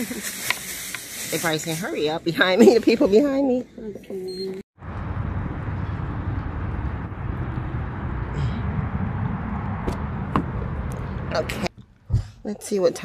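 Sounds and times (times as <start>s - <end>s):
low rumble: 4.8s - 12.4s.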